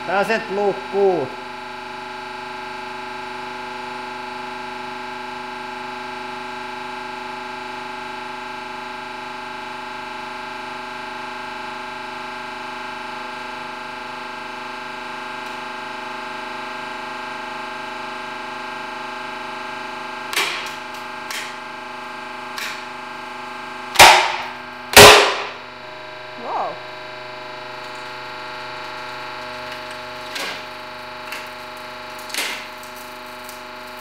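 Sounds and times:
hydraulic press hum: 0:20.1 - 0:33.6
loud snaps of wood: 0:20.3 - 0:21.6, 0:24.0 - 0:25.6, 0:32.2 - 0:32.7
board cracking under press: 0:24.0 - 0:25.6, 0:29.7 - 0:34.0.

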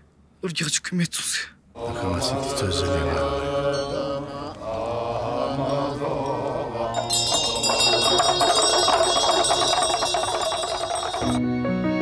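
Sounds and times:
low prayer chanting: 0:01.7 - 0:10.6
chimes ringing: 0:02.4 - 0:11.4.

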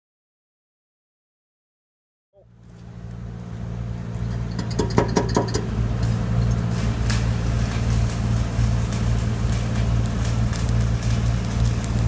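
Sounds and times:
welding machine engine hum: 0:02.4 - 0:12.0
welding arc crackling and popping: 0:02.6 - 0:12.0.

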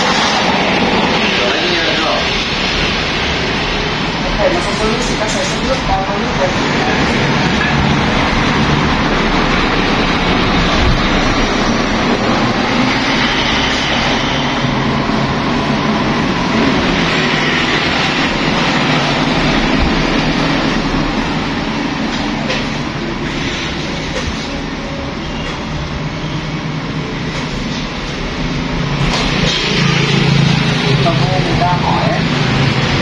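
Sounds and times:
vehicles driving past: 0:00.0 - 0:33.0.

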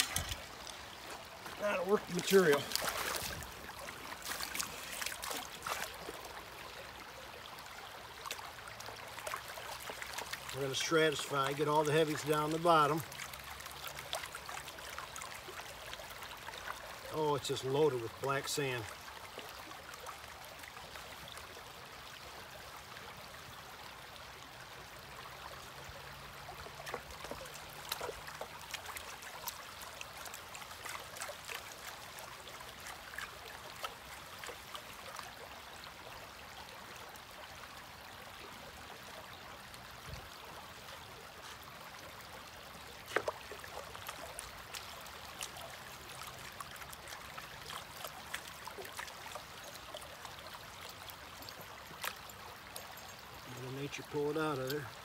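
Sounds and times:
water splashing in pan: 0:00.0 - 0:03.6
creek water running: 0:00.0 - 0:55.0.

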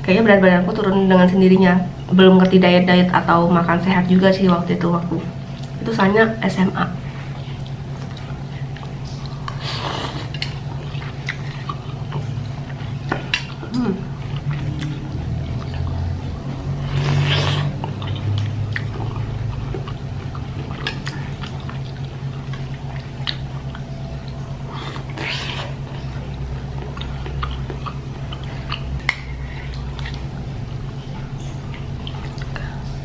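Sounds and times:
steady low hum: 0:00.0 - 0:33.0
biting and chewing: 0:07.3 - 0:32.8.

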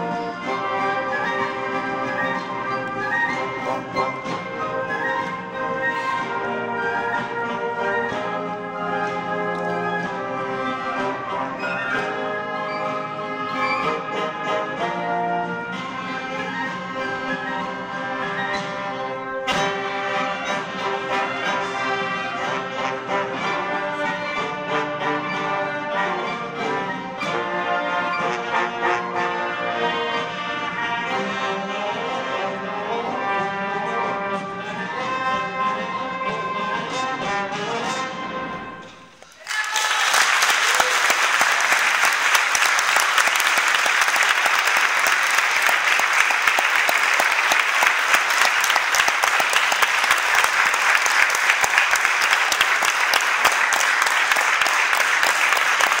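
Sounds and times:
concert band playing: 0:00.0 - 0:56.0
audience applause: 0:39.2 - 0:56.0.

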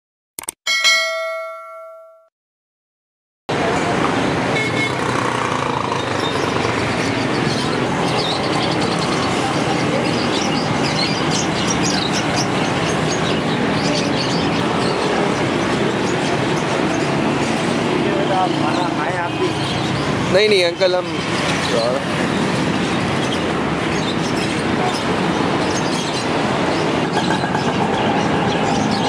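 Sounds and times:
notification bell ding: 0:00.7 - 0:02.3
traffic running past: 0:03.5 - 0:29.0
car horns: 0:04.5 - 0:05.1
people's voices: 0:08.1 - 0:12.4.

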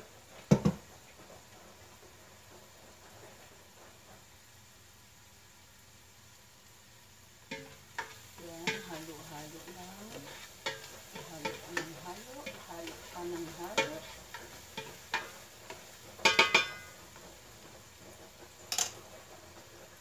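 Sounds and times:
onions sizzling in a pot: 0:00.0 - 0:20.0
spoon scraping a pot: 0:07.5 - 0:17.0
utensil clicking on a pot: 0:07.5 - 0:17.0
ringing metal knocks on a pot: 0:16.2 - 0:17.0.

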